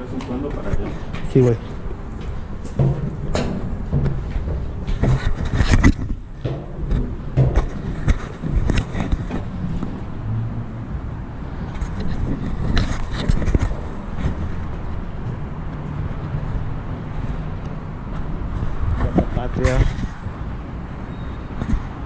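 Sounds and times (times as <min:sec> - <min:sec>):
footsteps on steel stairs: 0:00.2 - 0:10.1.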